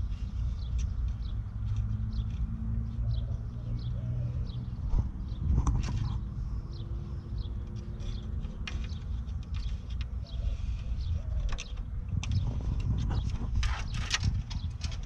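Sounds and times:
small birds chirping: 0.0s - 15.0s
plastic parts creaking and clicking: 7.6s - 15.0s.

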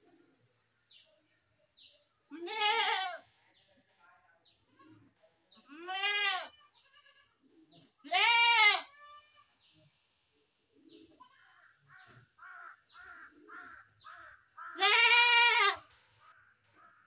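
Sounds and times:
goat bleating: 2.3s - 3.2s, 4.7s - 7.4s, 8.0s - 9.6s, 14.6s - 15.9s.

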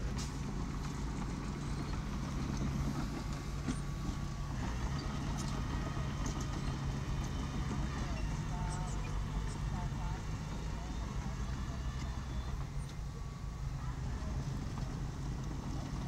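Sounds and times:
bulldozer engine running: 0.0s - 16.0s.

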